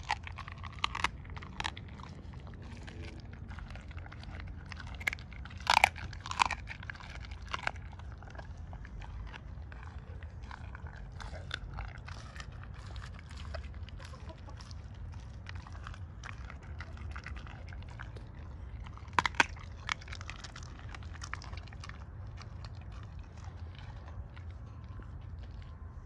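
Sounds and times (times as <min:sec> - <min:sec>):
dog chewing and crunching: 0:00.0 - 0:26.0
sharp bone cracks: 0:19.0 - 0:22.6.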